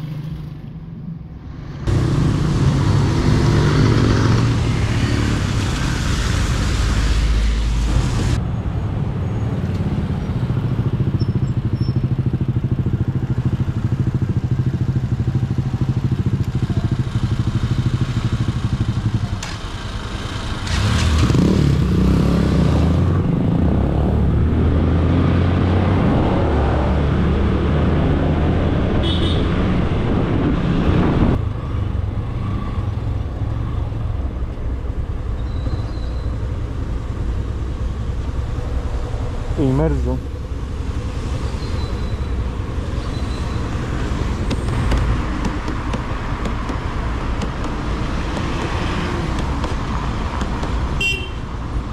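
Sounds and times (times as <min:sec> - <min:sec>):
motorcycle engine running: 0:10.2 - 0:20.2, 0:42.1 - 0:51.4.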